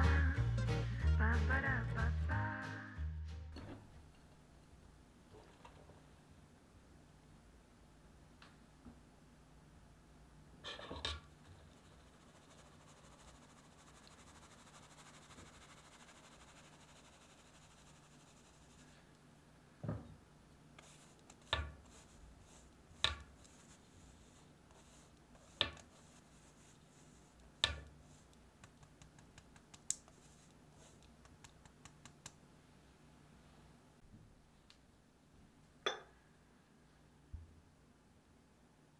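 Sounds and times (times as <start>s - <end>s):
spatula scratching mesh: 10.6s - 19.0s, 20.8s - 32.3s
faint sifting hiss: 10.6s - 19.8s, 20.5s - 34.0s.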